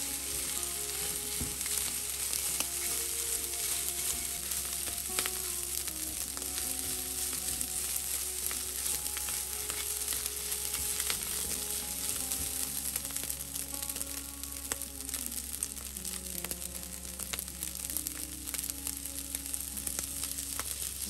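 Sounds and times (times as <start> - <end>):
rice sizzling in frying pan: 0.0 - 21.0.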